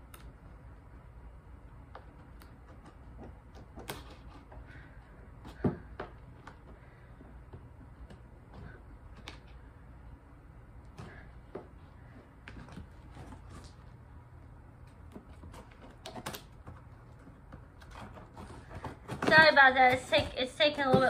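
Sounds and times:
fingers and scissors on packing tape: 0:15.1 - 0:21.0.

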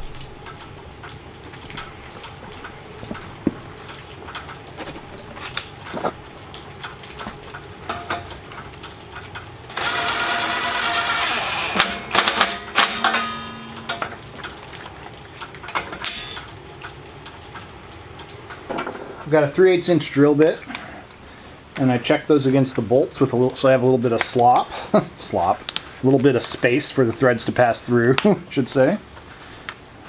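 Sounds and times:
cordless drill spinning nut: 0:09.8 - 0:12.5
metal hardware clinking: 0:12.2 - 0:14.2, 0:15.7 - 0:16.5.

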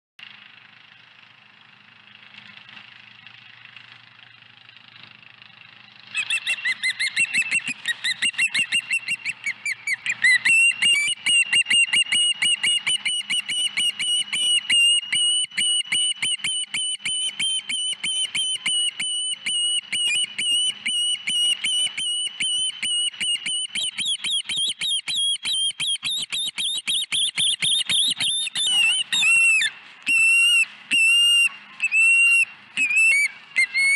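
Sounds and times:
young bird whistled chirps: 0:06.2 - 0:33.9.

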